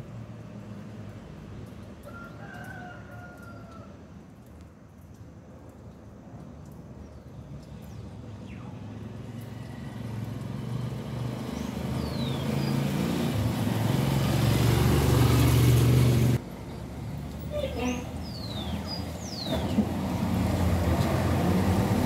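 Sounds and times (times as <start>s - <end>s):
motor vehicle engine approaching: 7.0s - 22.0s.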